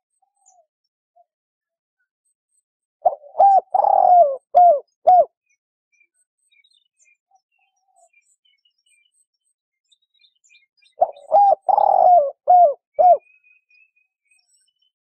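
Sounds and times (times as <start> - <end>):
dove cooing: 3.0 - 5.3, 11.0 - 13.2.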